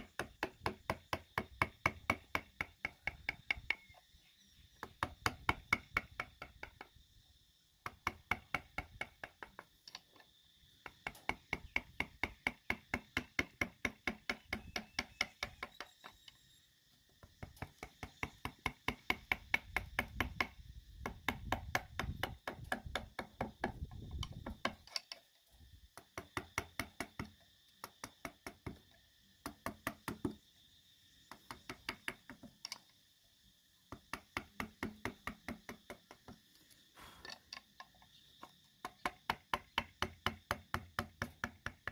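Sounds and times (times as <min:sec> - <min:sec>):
mallet tapping a chisel into wood: 0:00.1 - 0:03.9.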